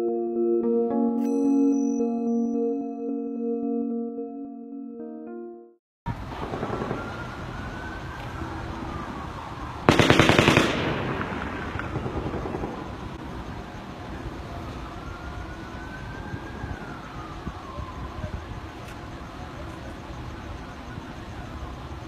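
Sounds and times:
emergency siren wailing: 0:06.1 - 0:09.9, 0:11.9 - 0:22.0
automatic gunfire burst: 0:09.9 - 0:12.9.

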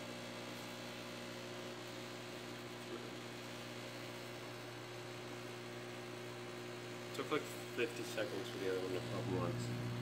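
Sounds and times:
microwave oven humming: 0:00.0 - 0:10.0.

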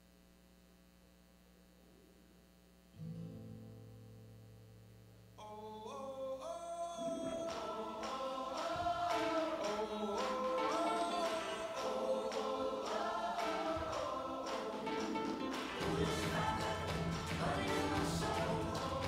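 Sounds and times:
layered sung harmonies: 0:05.4 - 0:19.0
steady dance beat: 0:07.6 - 0:19.0.

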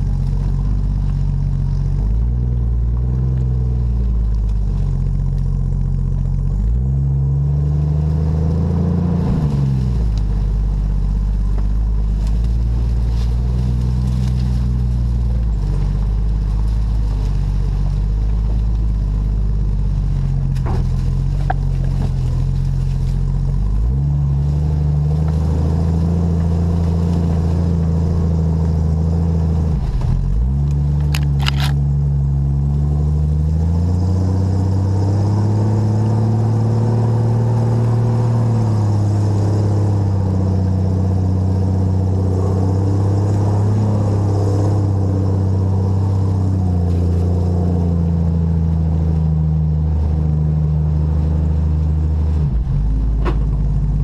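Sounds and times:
truck engine under load: 0:00.0 - 0:54.0
sharp clicks: 0:30.6 - 0:31.9.

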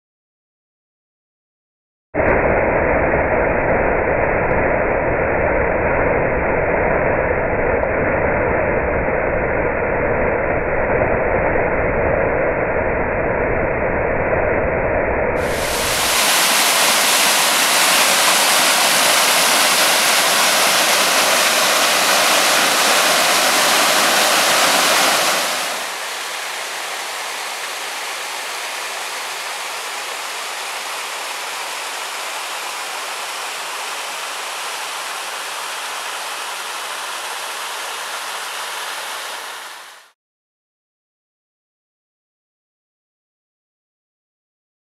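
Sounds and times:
waterfall rushing over rock: 0:15.4 - 0:40.1.

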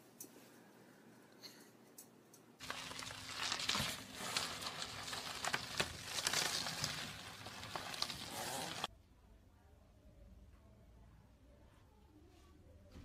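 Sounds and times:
bubble wrap crackling: 0:02.6 - 0:08.9.

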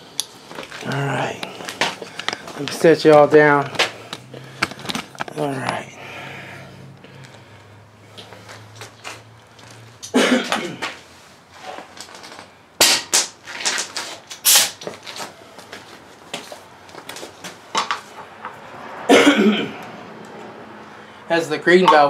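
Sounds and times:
air hissing from tire valve: 0:14.4 - 0:14.8.

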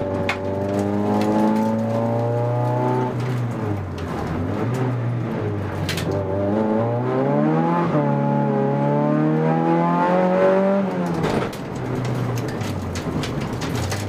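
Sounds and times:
race car engine accelerating: 0:00.0 - 0:11.3
rattling clicks: 0:11.0 - 0:14.0.

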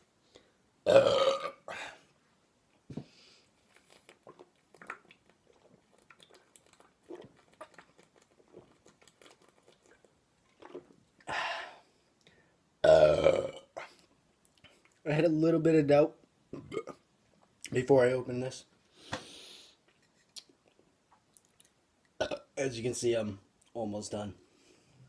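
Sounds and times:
person gulping from bottle: 0:03.8 - 0:11.4.

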